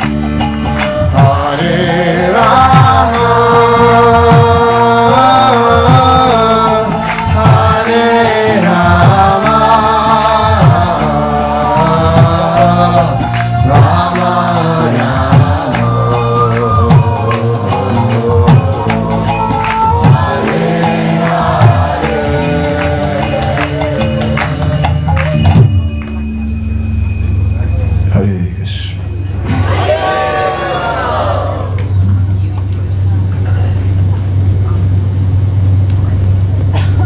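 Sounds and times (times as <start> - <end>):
drum beating steady rhythm: 0.0 - 26.5
harmonium chords: 0.0 - 32.0
voices chanting in unison: 1.3 - 24.6, 29.5 - 31.8.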